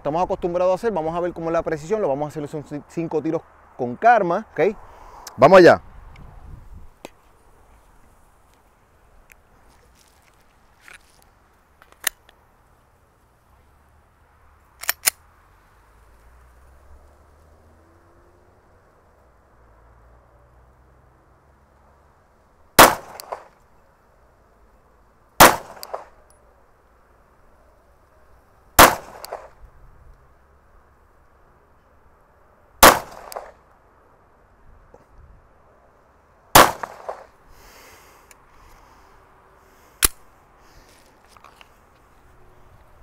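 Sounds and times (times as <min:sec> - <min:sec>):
pistol shots: 0:22.8 - 0:23.5, 0:25.4 - 0:26.2, 0:28.8 - 0:29.6, 0:32.8 - 0:33.6, 0:36.5 - 0:37.3
sharp click: 0:25.7 - 0:26.4, 0:29.0 - 0:29.5, 0:33.1 - 0:33.5, 0:40.0 - 0:40.2.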